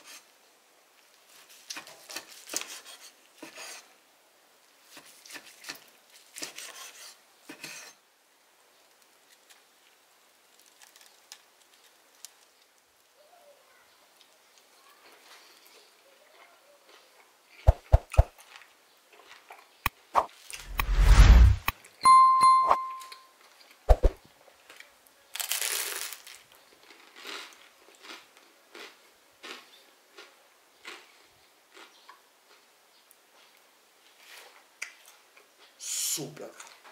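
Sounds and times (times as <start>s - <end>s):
crunching chews: 18.2s - 19.7s, 25.4s - 31.9s
crunchy bite into toast: 25.4s - 31.1s.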